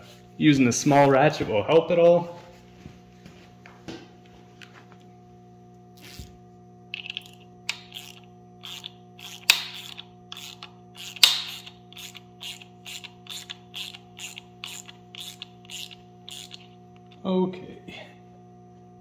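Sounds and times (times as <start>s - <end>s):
hand ratchet clicking: 7.0s - 17.2s.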